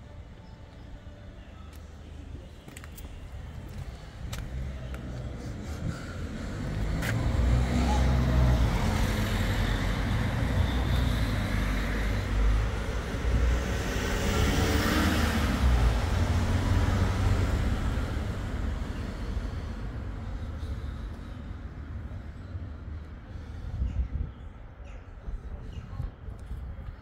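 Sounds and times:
road traffic rumble: 0:00.0 - 0:27.0
vehicle passing: 0:04.0 - 0:22.0.

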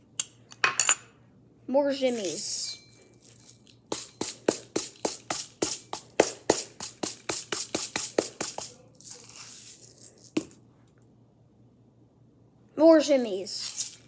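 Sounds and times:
sprinkles rattling in shaker: 0:02.1 - 0:10.6, 0:13.5 - 0:14.0.

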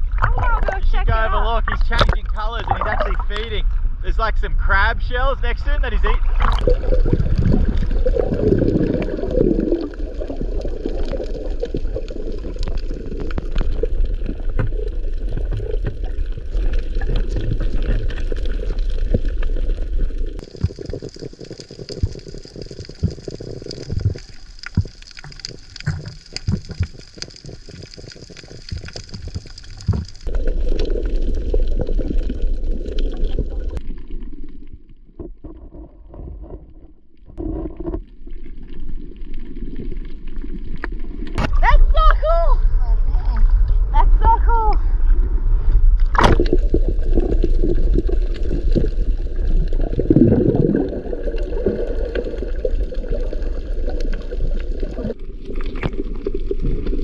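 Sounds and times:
underwater sloshing and gurgling: 0:00.0 - 0:04.0, 0:06.1 - 0:41.7, 0:42.6 - 0:44.2, 0:44.8 - 0:57.0
sharp crackling clicks: 0:10.6 - 0:16.0, 0:17.9 - 0:31.0.

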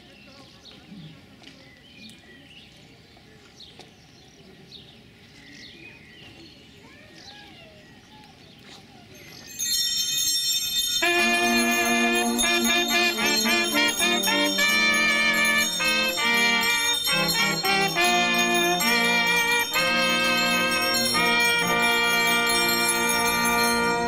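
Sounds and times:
faint birdsong: 0:00.0 - 0:09.9
hand bells ringing: 0:09.2 - 0:24.0
low sustained musical notes: 0:11.0 - 0:24.0.

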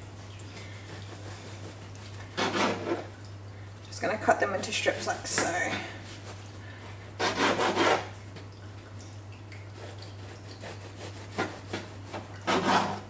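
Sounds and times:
bread knife sawing crusty bread: 0:00.7 - 0:03.1, 0:07.2 - 0:08.1, 0:09.8 - 0:13.0.

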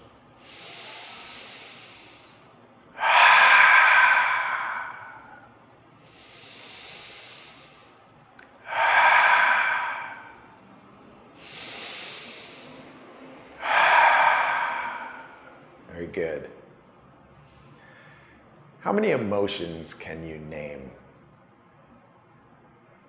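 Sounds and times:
breathy exhale through throat: 0:00.4 - 0:08.0, 0:08.6 - 0:10.7, 0:11.4 - 0:13.0, 0:13.6 - 0:15.6
man inhaling softly: 0:00.4 - 0:08.0, 0:08.6 - 0:10.8, 0:11.4 - 0:13.0, 0:13.6 - 0:15.6, 0:17.4 - 0:18.4.

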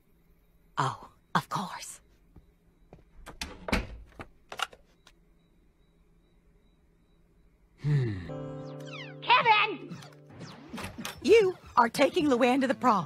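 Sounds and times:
door opening and shutting: 0:03.2 - 0:04.8, 0:10.0 - 0:11.4.

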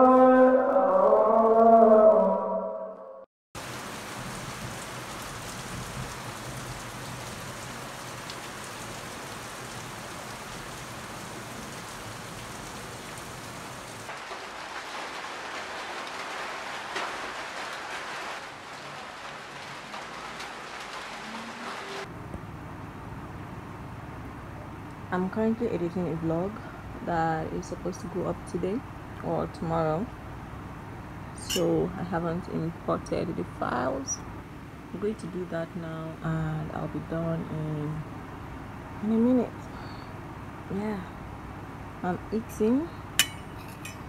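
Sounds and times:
steady rain falling: 0:03.6 - 0:23.2.

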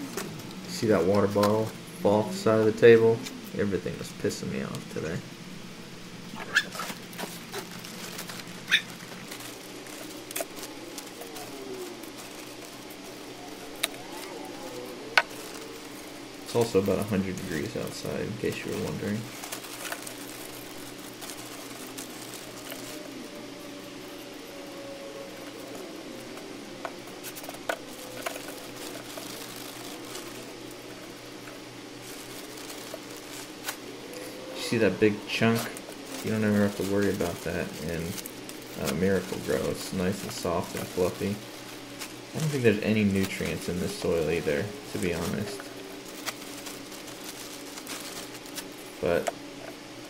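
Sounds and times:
steady low hum: 0:00.0 - 0:50.0
bird calling: 0:06.3 - 0:49.7
plastic bag crinkling: 0:06.4 - 0:50.0.

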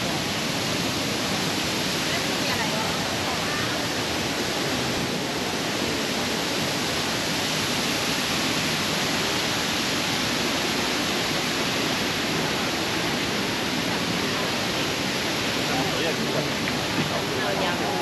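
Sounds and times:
steady rushing hiss: 0:04.0 - 0:18.0.

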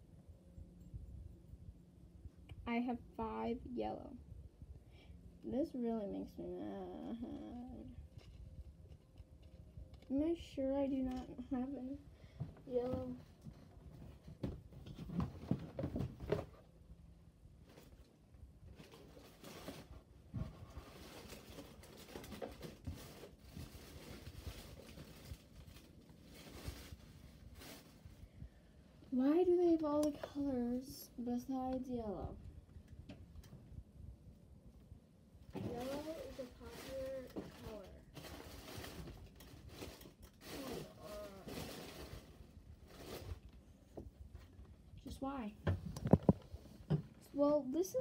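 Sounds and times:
rustling: 0:17.6 - 0:32.4, 0:35.4 - 0:48.0.

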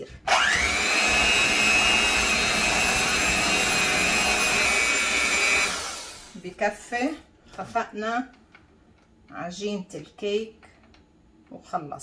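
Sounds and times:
electric hand mixer whining: 0:00.0 - 0:06.4.

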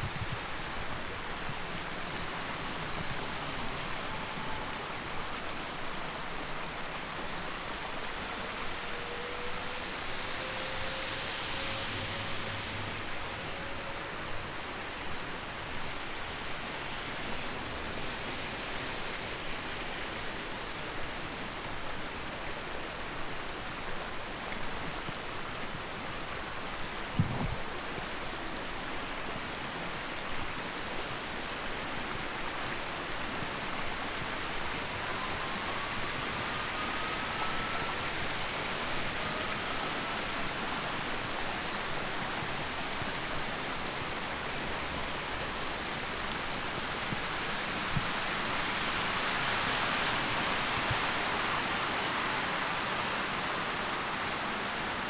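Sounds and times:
rushing outdoor noise: 0:00.0 - 0:55.0
faint upward gliding tones: 0:01.9 - 0:16.5, 0:32.2 - 0:44.2.

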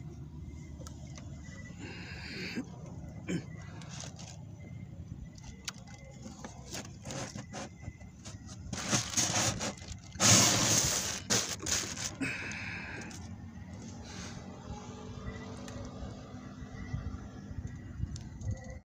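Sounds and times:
clicks and scrapes: 0:05.8 - 0:12.2
plastic sheet rustling: 0:06.7 - 0:12.2.

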